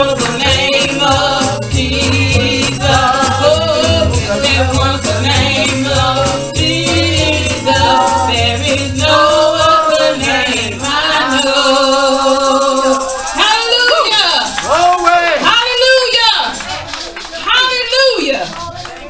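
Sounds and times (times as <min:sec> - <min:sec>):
woman singing gospel song: 0:00.0 - 0:14.5
bass: 0:00.0 - 0:15.4
rattling percussion: 0:00.0 - 0:19.0.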